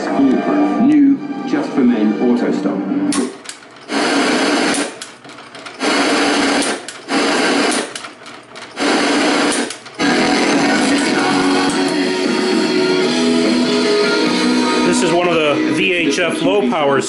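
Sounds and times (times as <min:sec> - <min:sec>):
noisy tv sound: 0:00.0 - 0:17.0
motorized tv tuner whirring: 0:03.1 - 0:14.9.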